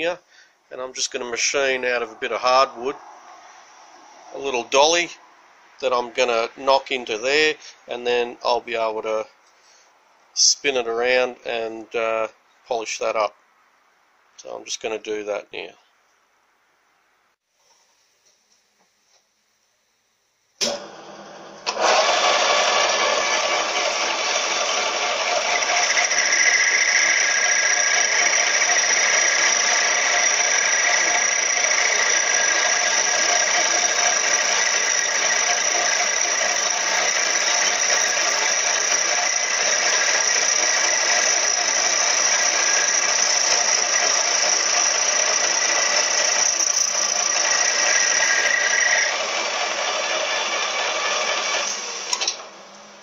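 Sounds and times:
lathe running: 0:20.6 - 0:53.0
high-pitched squeal of wood cutting: 0:21.7 - 0:52.3.

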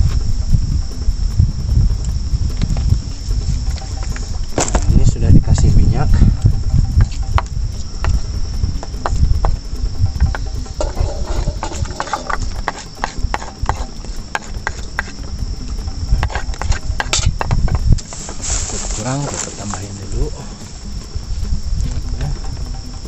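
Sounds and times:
insects chirring: 0:00.0 - 0:23.0
low rumble: 0:00.0 - 0:23.0
spoon scraping metal pan: 0:10.8 - 0:15.2.

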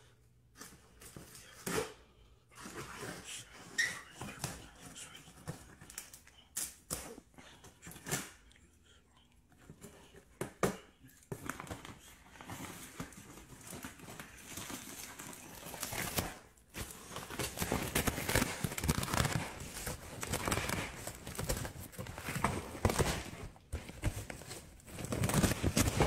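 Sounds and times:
cardboard rustling and tearing: 0:11.3 - 0:26.0.

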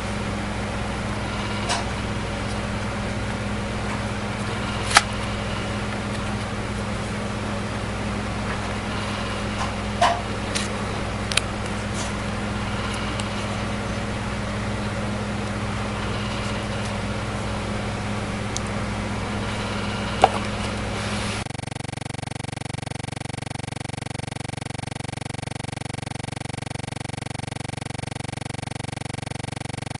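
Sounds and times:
steady electrical hum: 0:00.0 - 0:29.9
smartphone handling clicks: 0:04.9 - 0:05.1.

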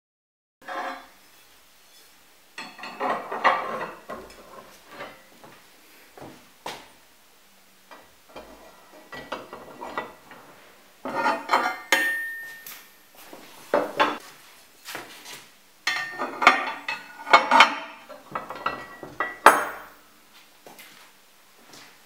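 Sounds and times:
metal plate clanking and scraping: 0:00.6 - 0:05.3, 0:08.3 - 0:12.6, 0:15.9 - 0:19.8.

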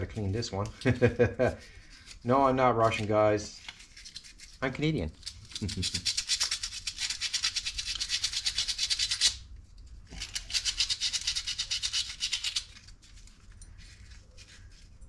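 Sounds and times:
sandpaper rubbing metal: 0:05.4 - 0:09.4, 0:10.2 - 0:12.9.

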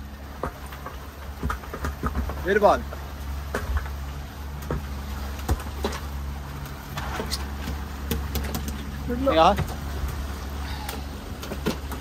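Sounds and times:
boat engine running: 0:00.0 - 0:12.0.

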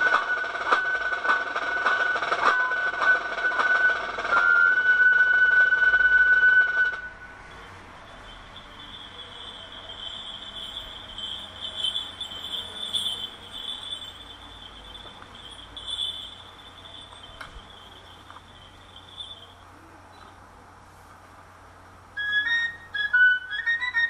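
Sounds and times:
insects chirping: 0:07.5 - 0:19.6.

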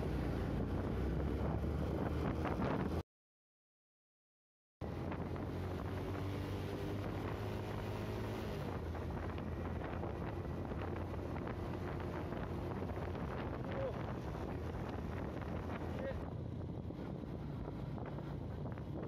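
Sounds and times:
motorcycle engine drone: 0:00.0 - 0:03.0, 0:04.8 - 0:19.0
road noise: 0:00.0 - 0:03.0, 0:04.8 - 0:19.0
wind buffeting microphone: 0:00.3 - 0:03.0, 0:08.6 - 0:19.0.

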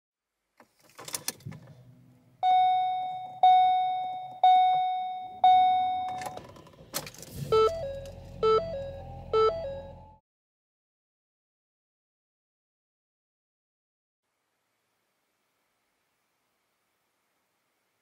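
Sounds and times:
multi-tone warning chime: 0:02.4 - 0:06.4, 0:07.5 - 0:10.2.

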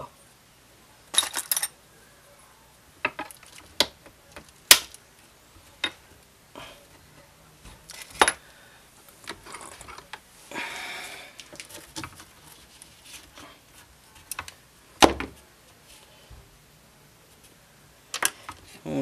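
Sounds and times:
rustling scrape: 0:11.6 - 0:13.9.

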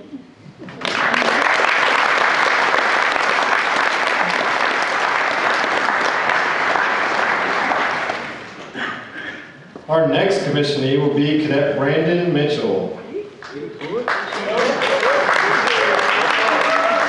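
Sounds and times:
audience applauding: 0:00.7 - 0:08.8, 0:13.4 - 0:17.0.

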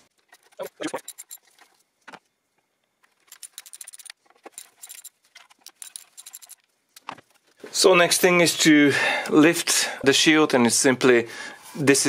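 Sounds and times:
metal bolts and tools clinking: 0:00.2 - 0:01.8, 0:03.0 - 0:06.6.

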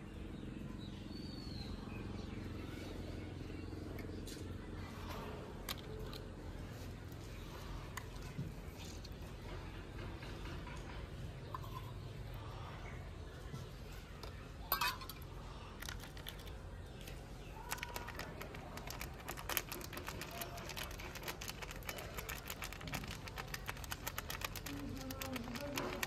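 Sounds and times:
small ticks and crinkles: 0:15.8 - 0:26.0.

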